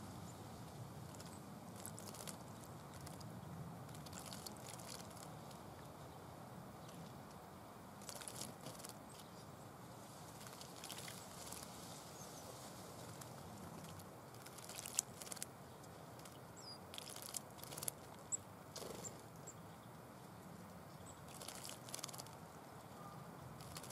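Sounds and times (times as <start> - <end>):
faint steady hiss: 0.0 - 23.9
birds splashing in water: 1.0 - 3.3, 3.9 - 5.4, 8.0 - 9.4, 10.3 - 11.8, 13.0 - 15.5, 16.1 - 18.9, 21.2 - 22.4, 23.6 - 23.9.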